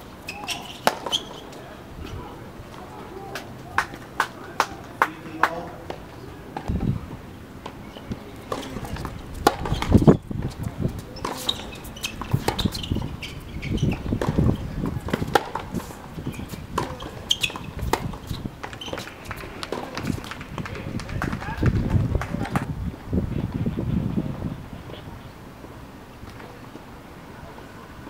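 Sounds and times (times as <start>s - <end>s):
tennis ball bouncing on hard court: 0.3s - 1.4s, 7.6s - 20.8s
tennis ball struck by rackets: 7.6s - 13.1s, 13.8s - 20.7s.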